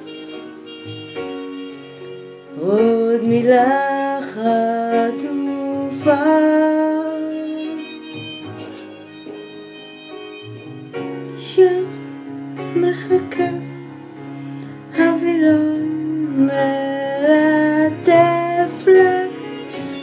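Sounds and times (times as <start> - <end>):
slow instrumental backing track: 0.0 - 15.0, 17.3 - 20.0
woman singing: 2.5 - 8.1, 11.4 - 13.8, 14.9 - 20.0.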